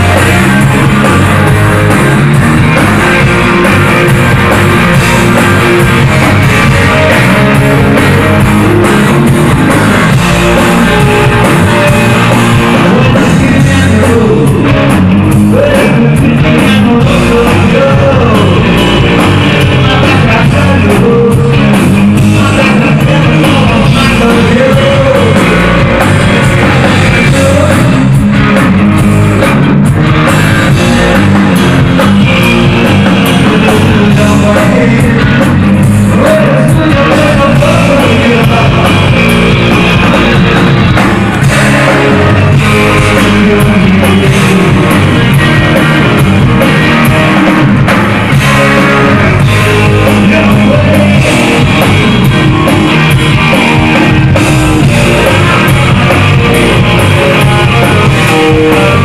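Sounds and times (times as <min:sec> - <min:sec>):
drum kit: 0:00.0 - 0:59.0
electric guitars: 0:00.0 - 0:59.0
man singing: 0:10.3 - 0:26.0, 0:26.6 - 0:28.2, 0:33.2 - 0:40.6, 0:41.3 - 0:46.1, 0:48.3 - 0:52.7, 0:54.6 - 0:59.0.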